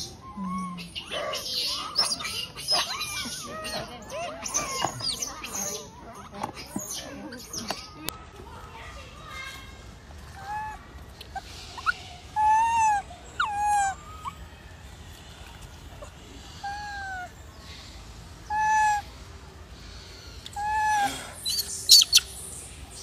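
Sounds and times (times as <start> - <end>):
infant monkey coo calls: 0.0 - 7.9, 10.3 - 14.7, 15.8 - 17.8, 18.4 - 19.2, 20.0 - 22.4.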